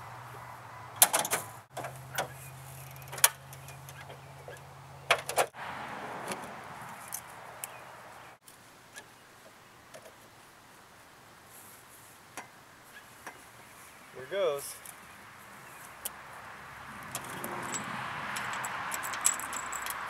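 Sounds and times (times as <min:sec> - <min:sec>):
car hood latch clicks and clunks: 0:01.0 - 0:02.3, 0:05.1 - 0:05.5
jumper cables rattling: 0:17.0 - 0:20.0.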